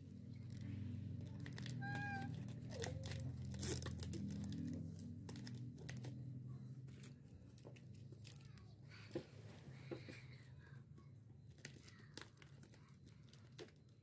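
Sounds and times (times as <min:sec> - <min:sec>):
plastic wrappers crinkling: 0:00.2 - 0:06.2, 0:06.9 - 0:08.8, 0:11.4 - 0:14.0.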